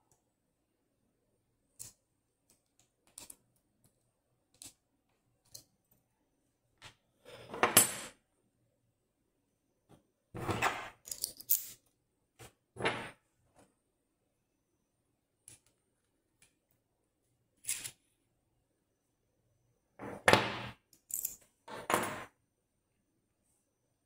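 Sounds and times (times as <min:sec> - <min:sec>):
metal parts handling: 0:10.6 - 0:11.8, 0:21.0 - 0:22.1
small metal parts clicking: 0:11.0 - 0:11.8, 0:20.9 - 0:21.4.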